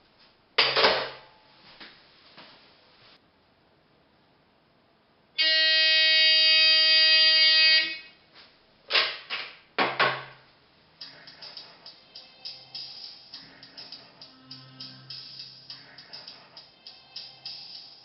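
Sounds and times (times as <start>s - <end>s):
faint phone audio: 11.0s - 18.0s.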